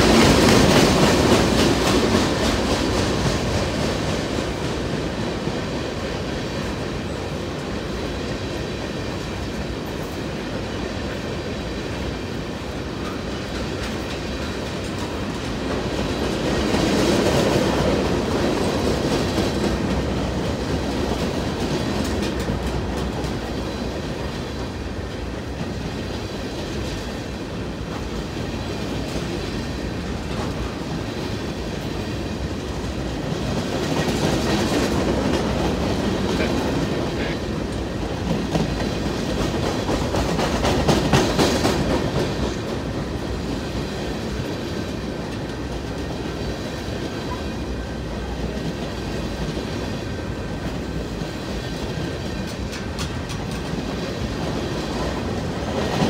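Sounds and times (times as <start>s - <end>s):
freight train wheels rumbling on rail: 0.0s - 56.0s.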